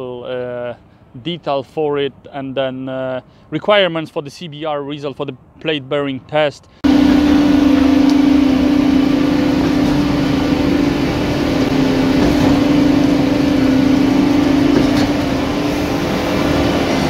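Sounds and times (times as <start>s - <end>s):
concrete mixer and pump droning: 6.8s - 17.0s.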